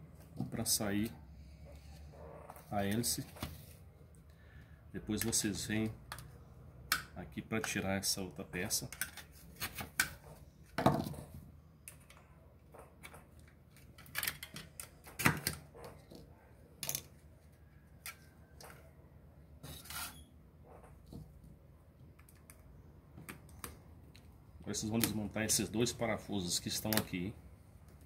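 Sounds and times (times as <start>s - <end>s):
plastic parts clicking and knocking: 8.8s - 17.2s
scrape: 19.6s - 20.2s.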